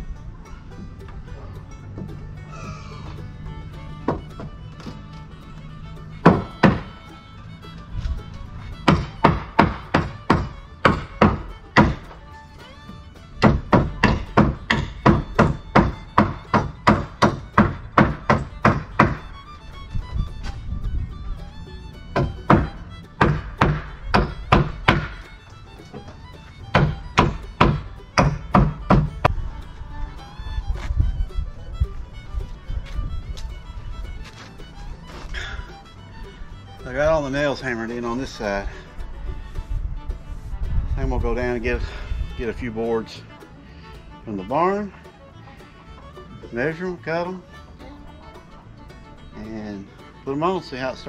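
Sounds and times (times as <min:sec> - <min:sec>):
fiddle music: 0:00.0 - 0:51.0
hammer driving nails into wood: 0:06.2 - 0:06.9, 0:08.8 - 0:12.1, 0:13.4 - 0:19.2, 0:22.2 - 0:25.2, 0:26.7 - 0:29.2.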